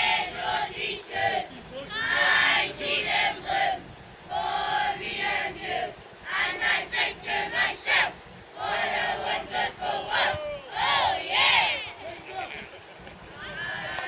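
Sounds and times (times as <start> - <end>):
crowd chanting in unison: 0.0 - 12.0.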